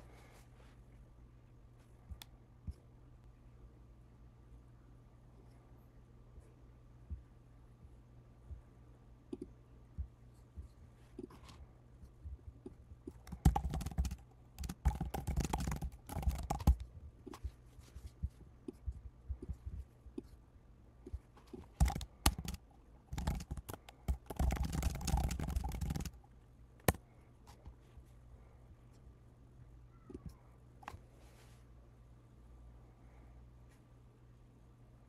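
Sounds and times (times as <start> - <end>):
typing on keyboard: 13.1 - 16.9, 21.8 - 26.2.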